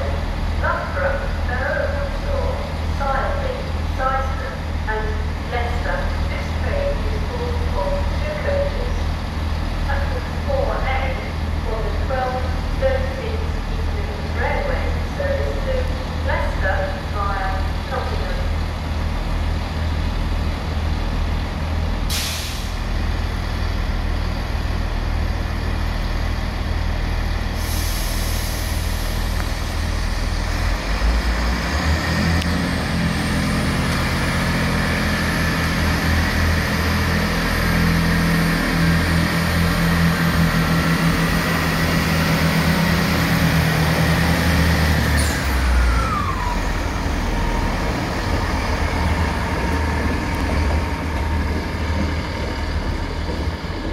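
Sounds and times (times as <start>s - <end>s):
diesel train engine running: 0.0s - 53.9s
air hiss: 22.1s - 22.8s, 27.6s - 29.3s.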